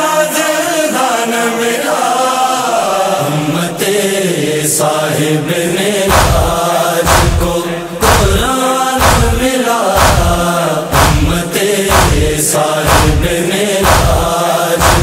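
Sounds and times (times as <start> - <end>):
voices chanting: 0.0 - 15.0
deep beat: 6.1 - 15.0.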